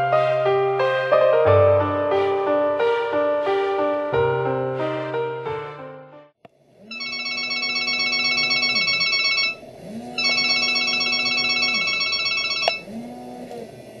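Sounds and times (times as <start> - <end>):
phone ringing electronic ringtone: 6.9 - 9.6, 10.2 - 12.9.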